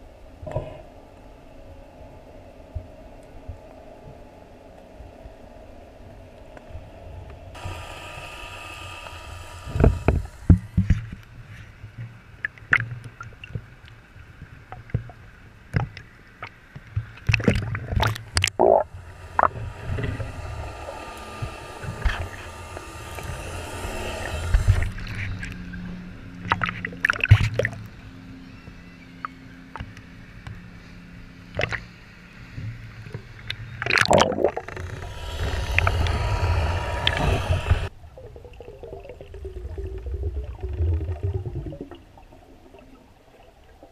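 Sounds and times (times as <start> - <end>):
low steady hum: 0.0 - 28.5, 29.9 - 43.9
water gurgling underwater: 17.3 - 25.0, 33.9 - 43.0.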